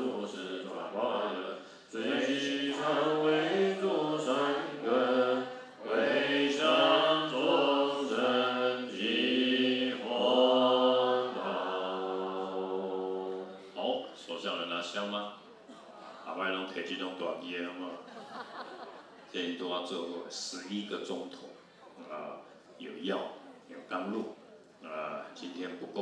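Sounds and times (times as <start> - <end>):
breaths between phrases: 1.6 - 1.9.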